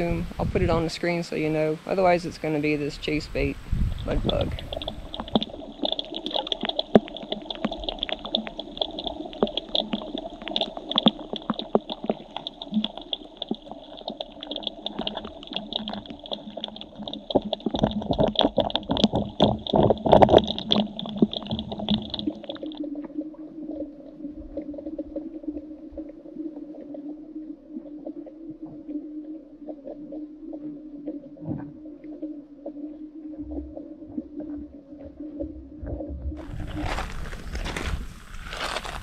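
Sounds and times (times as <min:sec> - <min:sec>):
low hum: 0:00.0 - 0:39.0
muffled underwater rushing: 0:00.0 - 0:39.0
small underwater clicks: 0:04.0 - 0:27.2.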